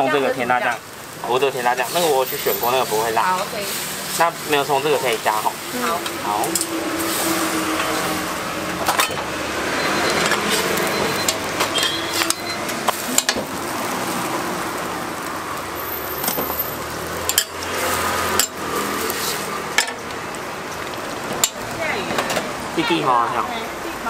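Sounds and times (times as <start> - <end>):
pancakes sizzling on griddle: 0.0 - 24.0
metal spatula scraping griddle: 6.0 - 13.5, 16.1 - 20.0.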